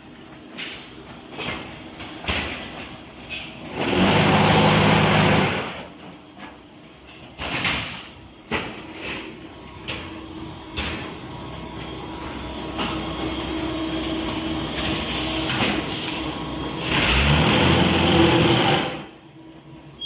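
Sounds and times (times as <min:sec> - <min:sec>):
heavy machine noise: 0:00.0 - 0:20.0
machinery humming: 0:08.1 - 0:20.0.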